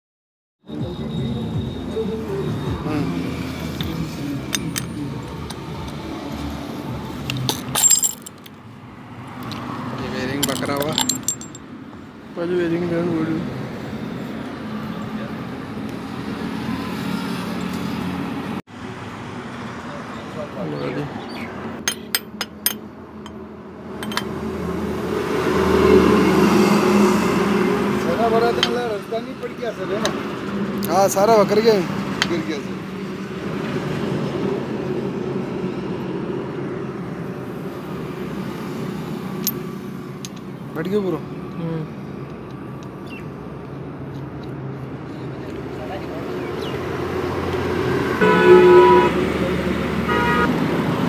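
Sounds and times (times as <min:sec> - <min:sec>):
metal tools clinking: 0:07.3 - 0:08.6, 0:10.3 - 0:11.7, 0:21.8 - 0:23.4, 0:24.0 - 0:24.3.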